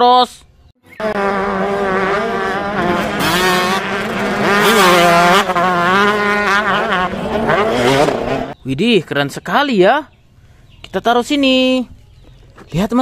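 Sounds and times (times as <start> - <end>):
motorbike engine revving: 0.9 - 8.6.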